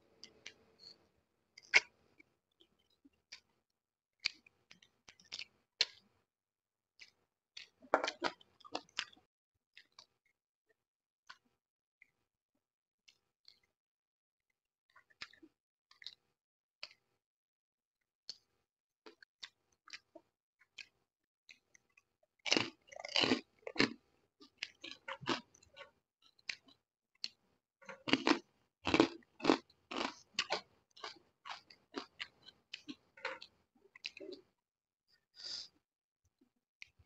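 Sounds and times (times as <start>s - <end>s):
crunching of crisp food: 4.2s - 6.0s, 7.0s - 9.2s, 21.8s - 34.4s.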